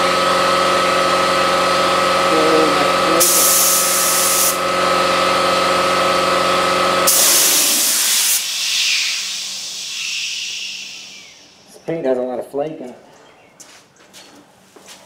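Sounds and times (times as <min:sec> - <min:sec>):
steady motor hum: 0:00.0 - 0:12.0
paint spray gun hissing: 0:03.2 - 0:04.6, 0:07.1 - 0:11.8.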